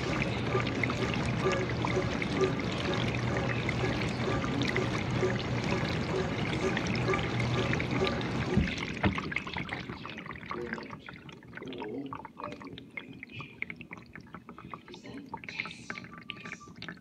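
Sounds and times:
dishwasher water running: 0:00.0 - 0:11.3
water dripping and gurgling: 0:00.0 - 0:17.0.

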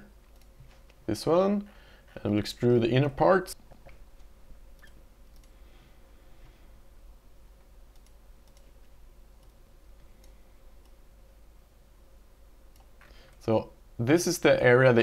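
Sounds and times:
faint steady hum: 0:00.0 - 0:15.0
faint mouse clicks: 0:00.3 - 0:01.0, 0:04.8 - 0:05.6, 0:07.9 - 0:11.0, 0:12.7 - 0:13.4.

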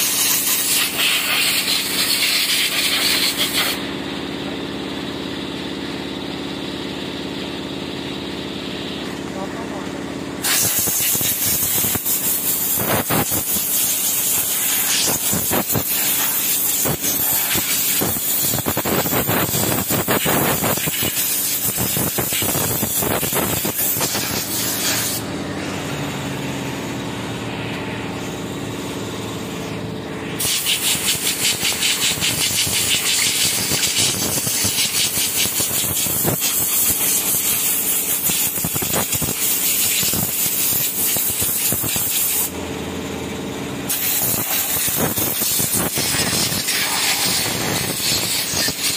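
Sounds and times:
pressure washer spraying water: 0:00.0 - 0:03.8, 0:10.4 - 0:25.2, 0:30.4 - 0:42.5, 0:43.9 - 0:48.9.

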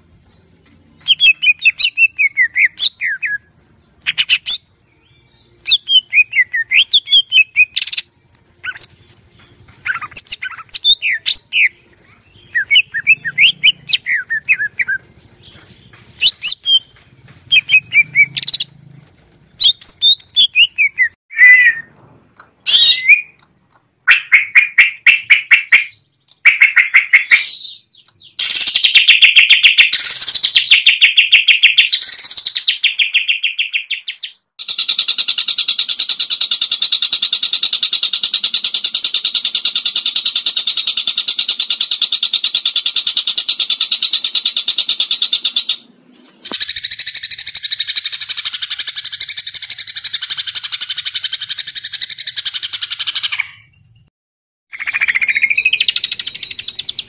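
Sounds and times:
bird singing whistled notes: 0:01.0 - 0:18.7, 0:19.6 - 0:21.9, 0:22.6 - 0:23.4, 0:54.8 - 0:57.0.

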